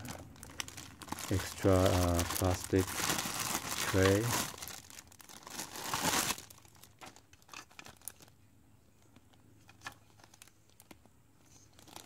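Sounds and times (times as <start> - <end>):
plastic bag crinkling: 0.0 - 8.4, 9.0 - 12.0
small plastic clicks and rustles: 6.9 - 8.4, 9.0 - 12.0.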